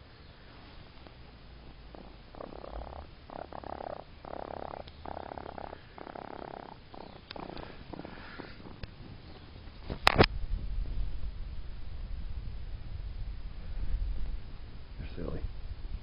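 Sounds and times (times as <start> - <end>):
baby raccoon purring: 1.0 - 10.0.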